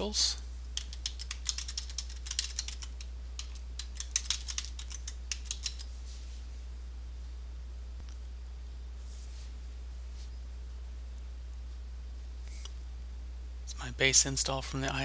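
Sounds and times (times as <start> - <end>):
steady low hum: 0.0 - 15.0
typing on computer keyboard: 0.8 - 5.9.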